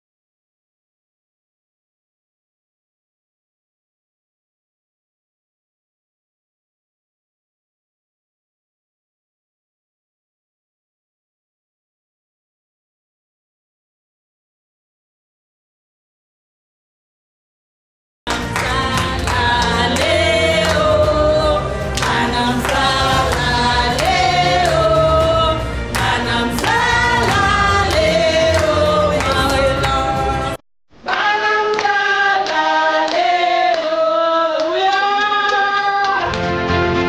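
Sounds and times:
hand-clapping: 0:18.3 - 0:21.1, 0:21.9 - 0:25.0, 0:25.9 - 0:30.1, 0:31.1 - 0:34.0, 0:34.6 - 0:36.6
low accompaniment: 0:18.3 - 0:30.6
group of voices singing: 0:18.3 - 0:36.4.

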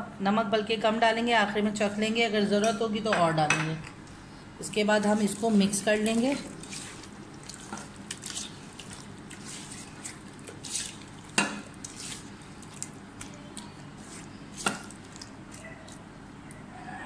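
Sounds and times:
wet stirring strokes: 0:04.7 - 0:16.6.

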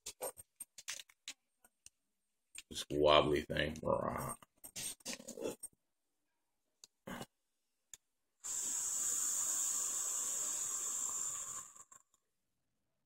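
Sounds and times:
vape coil hissing: 0:08.4 - 0:12.2.

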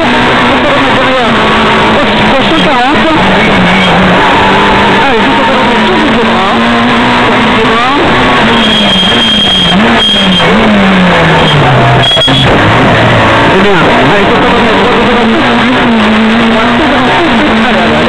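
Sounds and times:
rally car engine revving: 0:00.0 - 0:18.0
road and wind noise: 0:00.0 - 0:18.0.

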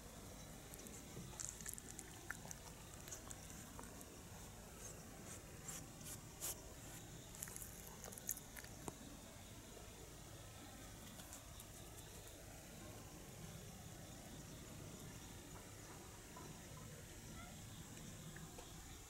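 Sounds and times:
cat chewing raw fish: 0:00.6 - 0:09.0.

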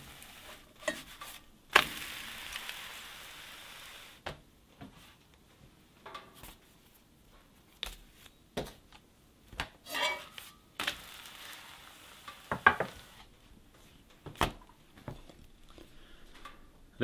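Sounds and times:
sizzling in a pan: 0:00.0 - 0:04.2, 0:09.9 - 0:13.4
knife scraping a skillet: 0:09.9 - 0:10.5.

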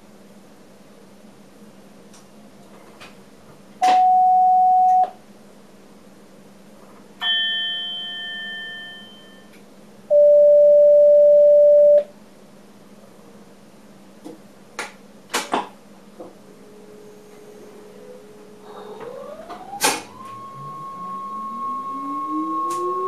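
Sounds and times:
electronic chime: 0:20.1 - 0:23.0.

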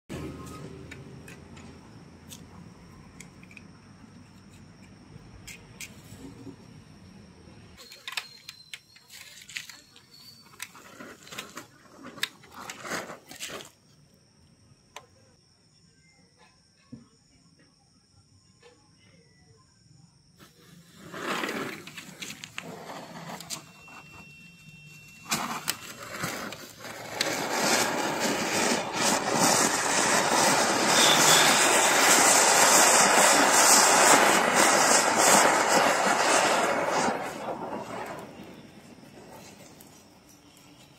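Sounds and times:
firework crackling and popping: 0:09.1 - 0:13.8, 0:20.4 - 0:40.7
faint high-pitched tone: 0:14.9 - 0:20.2, 0:23.2 - 0:26.5, 0:37.4 - 0:40.9.

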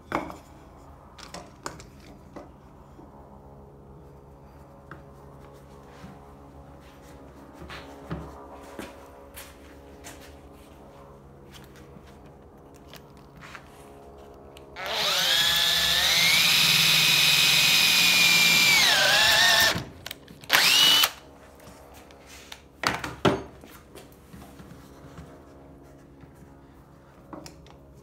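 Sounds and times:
electric drill boring into wood: 0:14.8 - 0:19.9, 0:20.5 - 0:21.2.

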